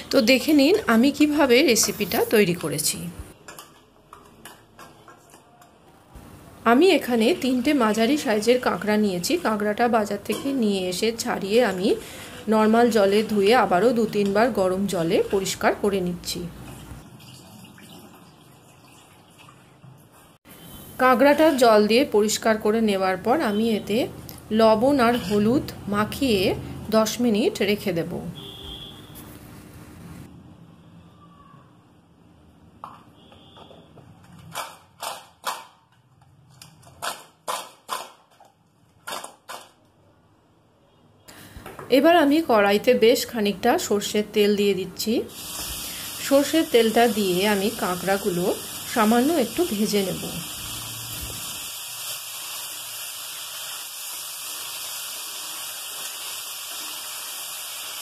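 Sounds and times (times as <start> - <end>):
food sizzling in hot oil: 45.3 - 58.0.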